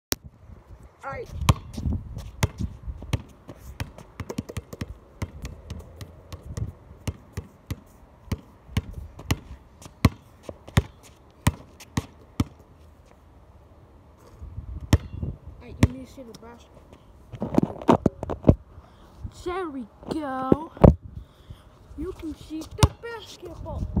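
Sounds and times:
basketball bouncing on concrete: 1.4s - 12.6s, 14.9s - 16.4s, 22.6s - 23.1s.

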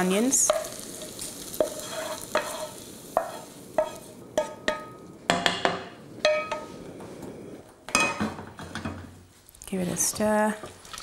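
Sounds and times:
wooden spoon scraping a pan: 0.4s - 4.6s
spoon knocking on metal pan: 3.2s - 6.7s.

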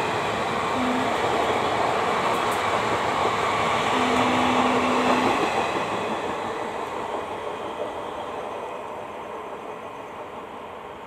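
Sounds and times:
train wheels rushing on rail: 0.0s - 11.0s
steady low tone: 0.8s - 1.6s, 3.9s - 5.5s.

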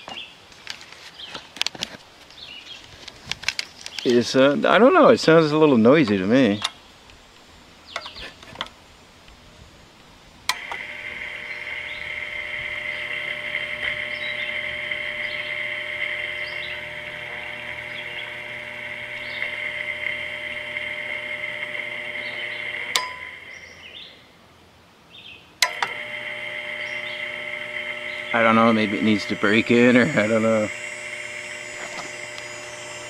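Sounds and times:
fan motor whining over a hum: 10.4s - 23.8s, 25.6s - 33.0s
switch click: 22.9s - 23.2s.

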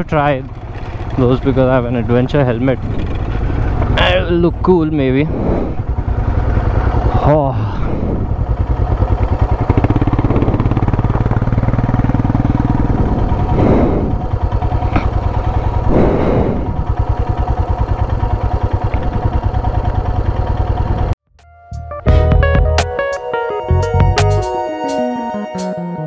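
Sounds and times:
motorcycle engine thumping: 0.0s - 5.2s, 8.3s - 21.2s.

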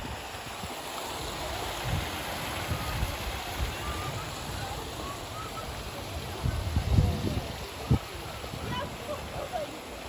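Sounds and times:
fountain water splashing: 0.0s - 10.0s
faint distant voices: 0.1s - 10.0s.

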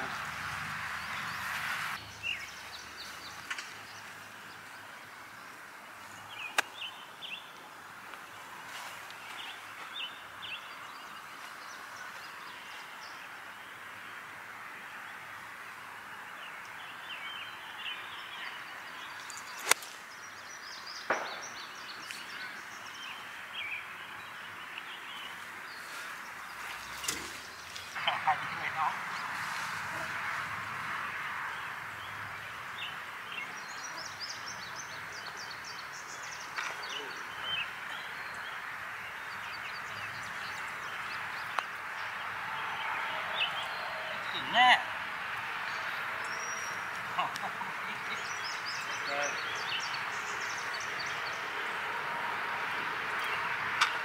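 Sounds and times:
steady outdoor hiss: 0.0s - 54.0s
sharp crack: 6.5s - 6.8s, 19.3s - 20.0s, 21.1s - 21.6s.

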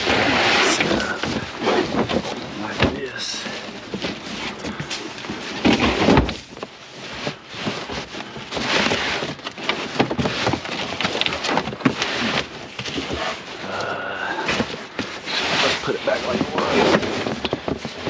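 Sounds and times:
cardboard rustling and scraping: 0.0s - 18.0s.

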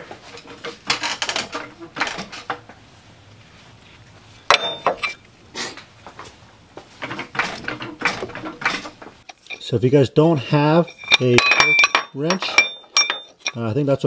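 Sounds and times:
metal tools clinking: 4.5s - 5.2s, 8.1s - 9.8s, 10.6s - 13.8s.

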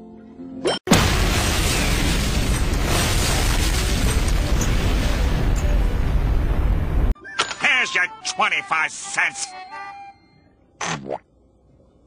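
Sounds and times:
explosion with rumble: 0.9s - 7.1s.

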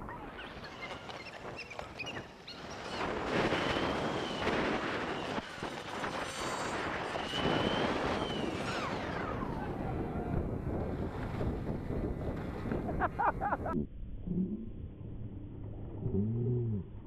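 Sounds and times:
wind rush on microphone: 0.0s - 13.8s
electric motor whine: 2.6s - 12.7s.

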